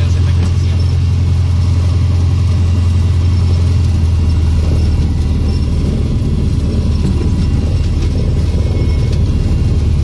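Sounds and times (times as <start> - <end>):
small plane engine drone: 0.0 - 10.0.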